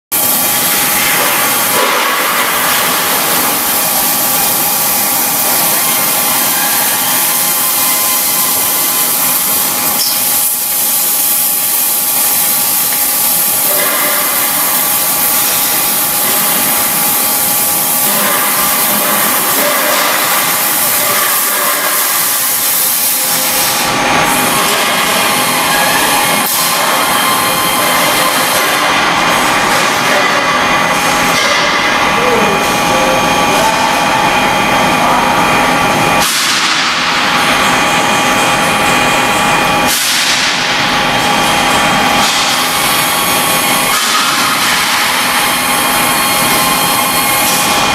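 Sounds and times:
cutting torch hissing: 0.2s - 29.8s.

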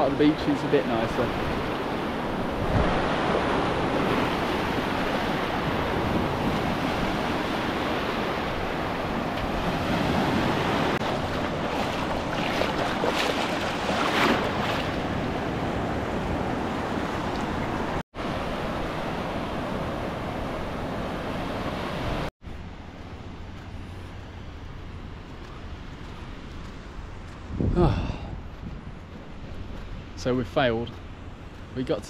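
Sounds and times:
sea waves washing onto beach: 0.0s - 22.3s
wind buffeting microphone: 1.1s - 21.0s, 23.5s - 31.8s.

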